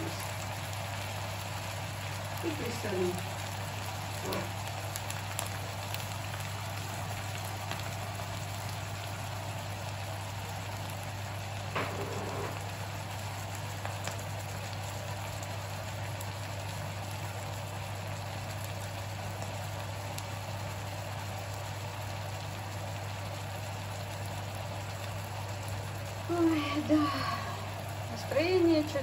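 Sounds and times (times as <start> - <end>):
mushrooms sizzling in a frying pan: 0.0 - 29.0
steady low hum: 25.2 - 29.0.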